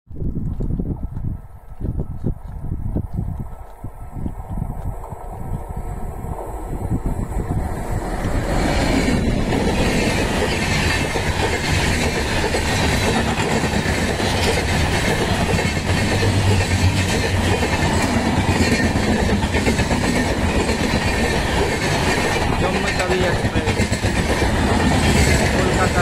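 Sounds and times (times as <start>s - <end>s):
electric locomotive passing: 4.0s - 26.0s
coach wheels clattering on rails: 8.0s - 26.0s.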